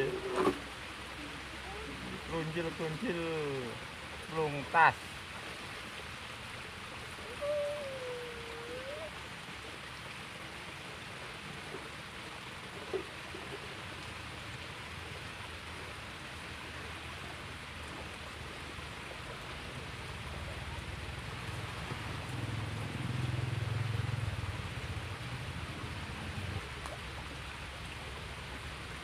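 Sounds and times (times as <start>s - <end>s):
stream running water: 0.0s - 29.0s.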